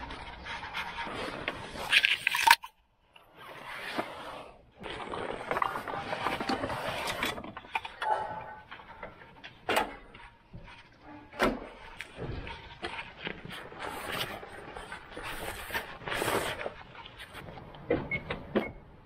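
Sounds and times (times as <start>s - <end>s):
crates and backpack rustling: 3.5s - 8.0s.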